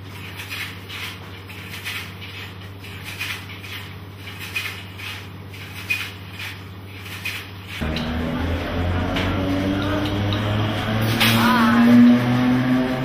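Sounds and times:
rhythmic rustle of film: 0.0s - 7.8s.

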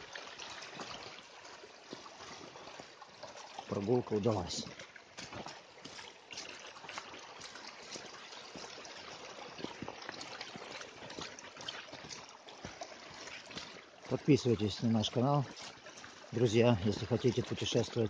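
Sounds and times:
stream trickling over stones: 0.0s - 18.0s
footsteps on wet leaves and gravel: 4.7s - 18.0s.

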